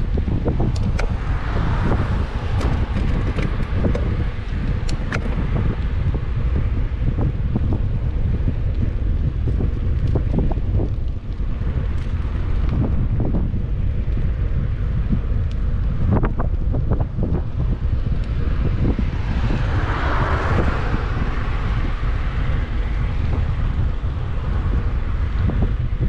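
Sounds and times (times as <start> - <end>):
road knocks and rattles: 0.0 - 26.0
steady low rumble: 0.0 - 26.0
wind buffeting microphone: 0.0 - 26.0.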